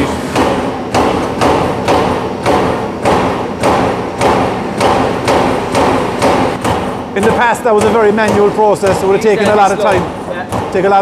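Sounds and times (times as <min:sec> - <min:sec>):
machine hum: 0:00.0 - 0:11.0
punching machine striking steel sheet: 0:00.0 - 0:11.0.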